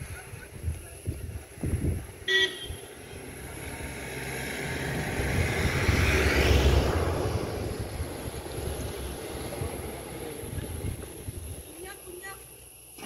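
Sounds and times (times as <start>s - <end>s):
vehicle passing by: 2.8s - 11.8s.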